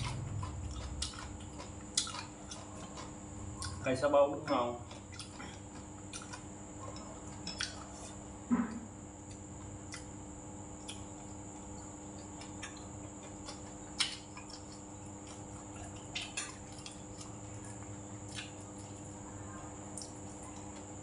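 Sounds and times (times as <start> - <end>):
wet chewing and mouth smacks: 0.0 - 3.8, 4.9 - 8.0, 9.3 - 10.1, 10.8 - 19.1, 19.9 - 20.4
faint steady hum: 0.0 - 21.0.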